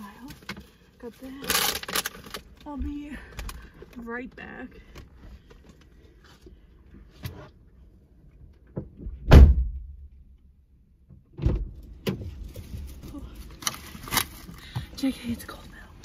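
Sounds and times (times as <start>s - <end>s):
car door shutting thump: 8.8s - 9.9s.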